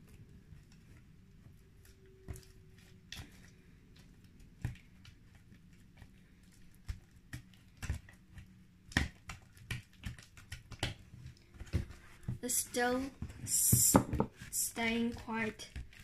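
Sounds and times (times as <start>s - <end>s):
slime clicking and squishing: 0.0s - 13.8s.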